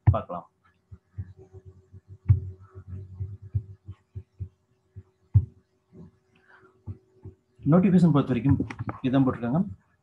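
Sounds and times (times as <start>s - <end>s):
low electrical hum: 0.0s - 10.0s
soft low thumps on desk: 0.9s - 6.2s.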